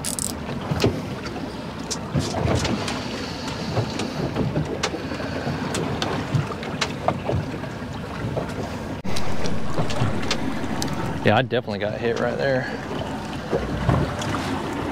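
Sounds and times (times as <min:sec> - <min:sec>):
water splashing against boat hull: 0:00.0 - 0:14.9
wind: 0:00.0 - 0:14.9
low thumps: 0:09.0 - 0:14.6.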